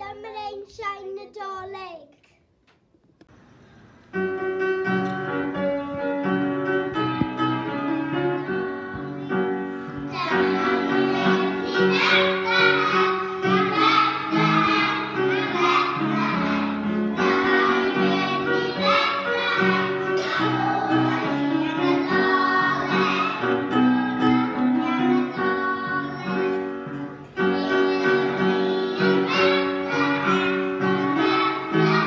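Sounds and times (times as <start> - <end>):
upright piano playing: 4.1 - 32.0
children's choir singing: 6.8 - 32.0.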